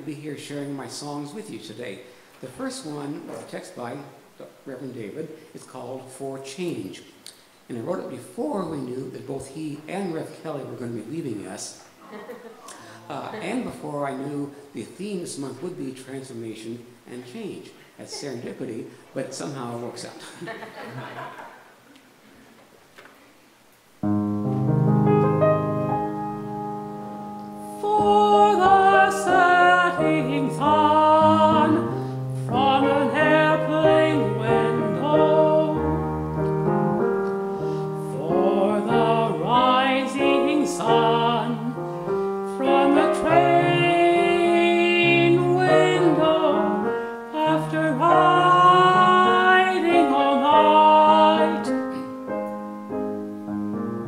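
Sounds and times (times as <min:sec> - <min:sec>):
grand piano: 0:24.0 - 0:54.0
male tenor singing: 0:27.7 - 0:35.8, 0:38.0 - 0:41.8, 0:42.6 - 0:51.8.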